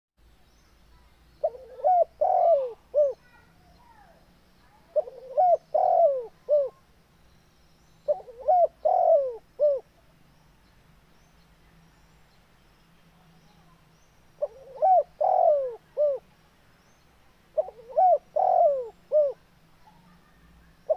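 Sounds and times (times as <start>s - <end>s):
small birds chirping: 0.2s - 20.9s
dove cooing: 1.4s - 3.4s, 4.9s - 6.8s, 8.1s - 9.9s, 14.4s - 16.3s, 17.6s - 20.9s.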